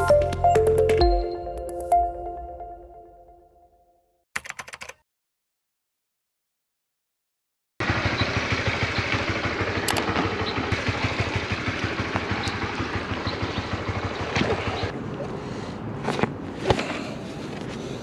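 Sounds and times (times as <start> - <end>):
motorcycle engine running: 7.8 - 15.0.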